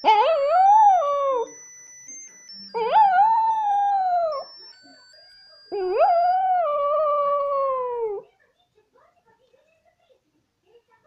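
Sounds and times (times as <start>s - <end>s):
small dog howling: 0.0s - 1.5s, 2.8s - 4.4s, 5.7s - 8.2s.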